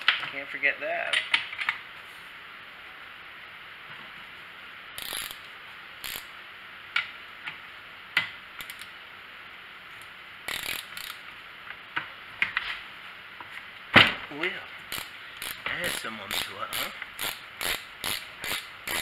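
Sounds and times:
ratchet wrench clicking: 0:05.0 - 0:06.3, 0:08.6 - 0:09.0, 0:10.5 - 0:11.2, 0:14.9 - 0:19.0.

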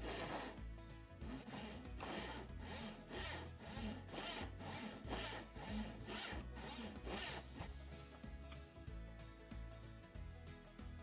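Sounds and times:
handsaw cutting wood: 0:00.0 - 0:07.7
background music: 0:00.0 - 0:11.0.

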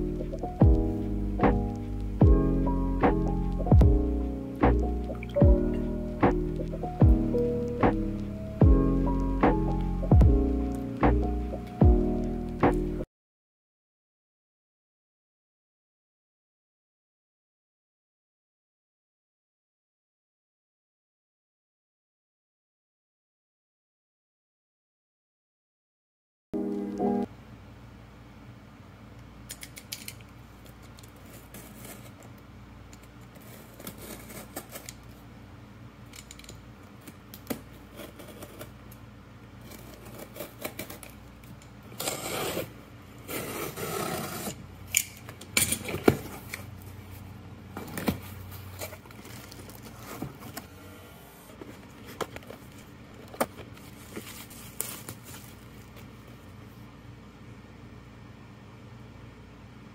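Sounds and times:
box cutter slitting packing tape: 0:39.7 - 0:41.1, 0:41.9 - 0:45.2.

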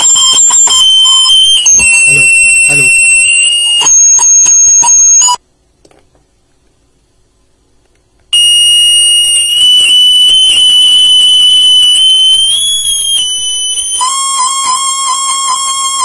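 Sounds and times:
high-pitched feedback whistle: 0:00.0 - 0:05.4, 0:08.4 - 0:16.0
lower pulsing tone: 0:08.4 - 0:15.0.

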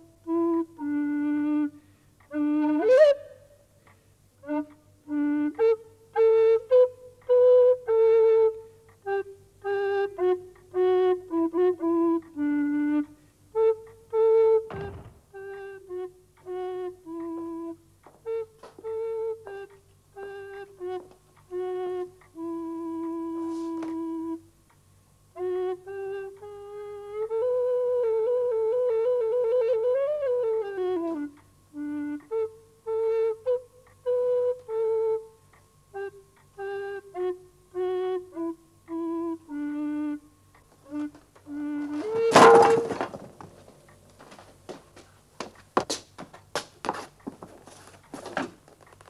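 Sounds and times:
recorder playing a melody: 0:00.0 - 0:44.5.

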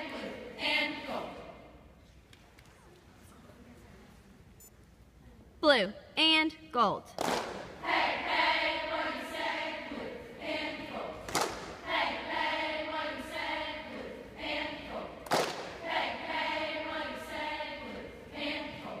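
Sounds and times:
girls chanting a cheer: 0:00.0 - 0:01.6, 0:07.4 - 0:19.0
sharp clap or stomp: 0:07.2 - 0:07.7, 0:11.2 - 0:11.8, 0:15.2 - 0:15.8.

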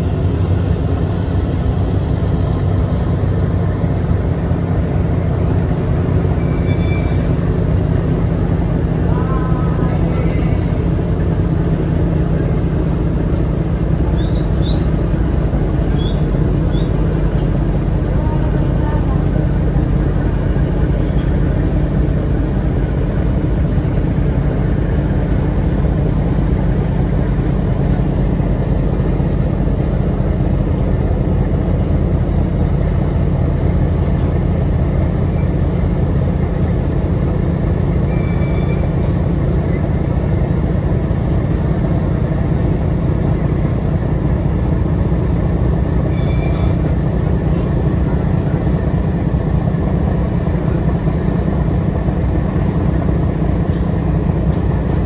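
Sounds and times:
boat diesel engines droning: 0:00.0 - 0:55.0
rushing water wash: 0:00.0 - 0:55.0
brief high tone: 0:38.1 - 0:38.9, 0:46.1 - 0:46.8.

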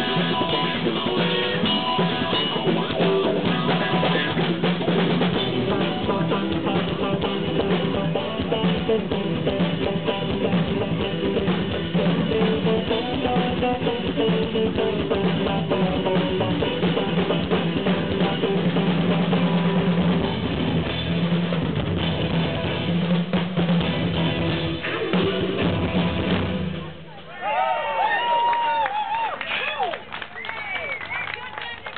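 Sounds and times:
electric guitars: 0:00.0 - 0:27.0
drum kit beat: 0:00.0 - 0:27.1.

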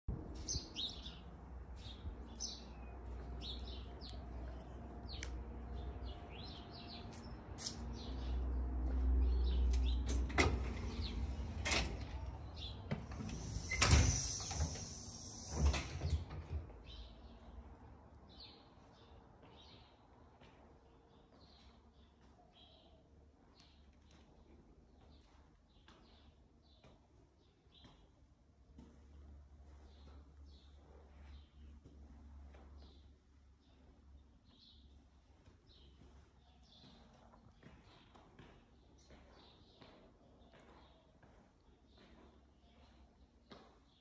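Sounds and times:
small birds chirping: 0:00.4 - 0:15.8, 0:32.6 - 0:44.0
metal door clunks: 0:09.8 - 0:16.7
door scraping hiss: 0:10.8 - 0:16.5.

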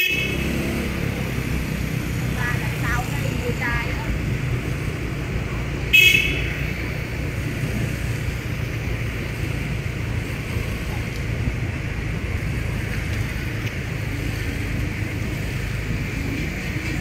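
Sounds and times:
vehicle horn beep: 0:00.0 - 0:00.6, 0:05.9 - 0:06.6
motorbike rumble: 0:00.0 - 0:17.0.

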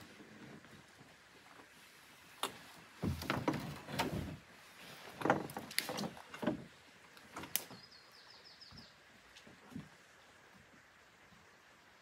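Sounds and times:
canoe hull knocking and scraping: 0:02.4 - 0:07.6.

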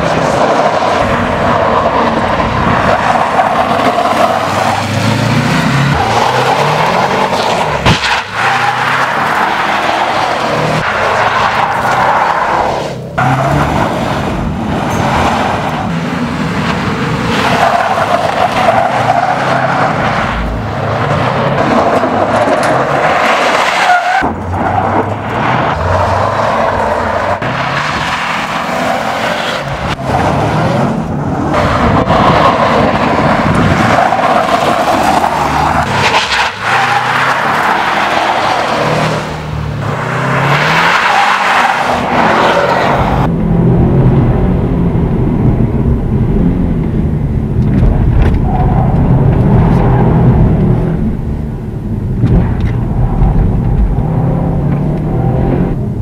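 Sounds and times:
tyres skidding on gravel: 0:00.0 - 0:43.3
car engine revving hard: 0:01.3 - 0:12.0, 0:25.4 - 0:44.9, 0:52.3 - 0:55.8.

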